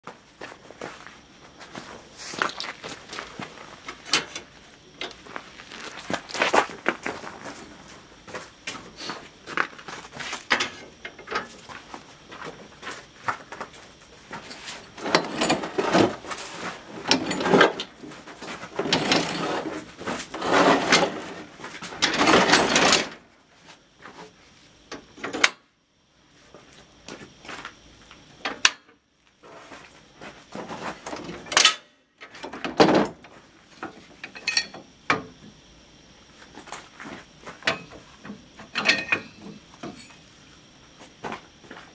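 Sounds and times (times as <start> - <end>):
metal clanks and knocks: 3.9 - 5.2, 10.5 - 11.6, 37.6 - 40.2
metal grating scrapes: 18.8 - 21.5.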